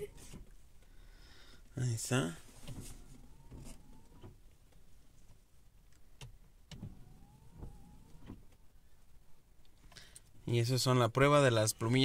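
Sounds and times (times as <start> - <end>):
wiper motor whine: 2.7 - 4.4, 6.7 - 8.5.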